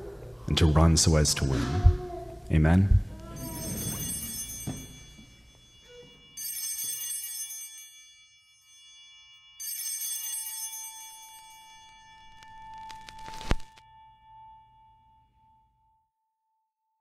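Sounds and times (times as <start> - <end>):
shimmering chime hits: 3.4 - 7.3.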